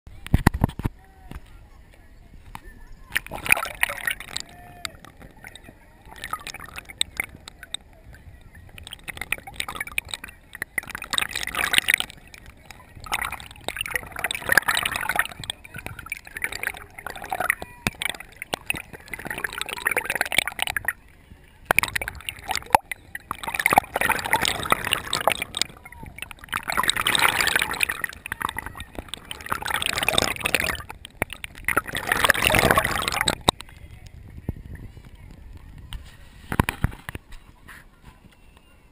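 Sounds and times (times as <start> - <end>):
water splashing against camera: 0.1 - 38.8.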